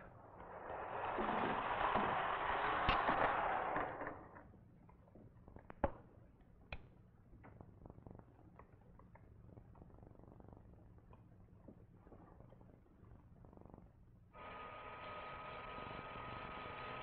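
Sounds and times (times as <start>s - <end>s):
cart rolling along track: 0.2s - 4.4s.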